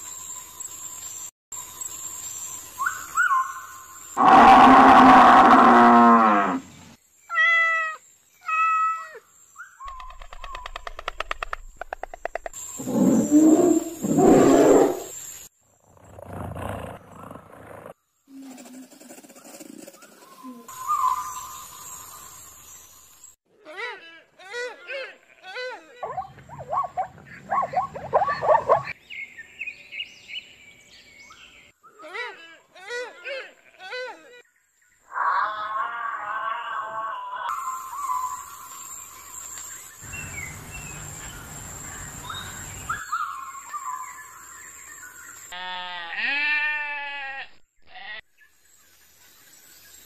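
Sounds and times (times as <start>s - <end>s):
robin singing: 2.6s - 4.0s, 20.2s - 22.9s, 37.5s - 45.5s
stork clattering its bill: 9.8s - 13.3s
zebra yelping barks: 26.0s - 29.0s.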